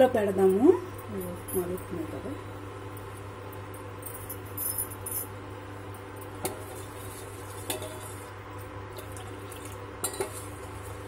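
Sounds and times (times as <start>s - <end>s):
steady low hum: 0.0s - 11.0s
ladle clinking against pot: 10.0s - 10.4s.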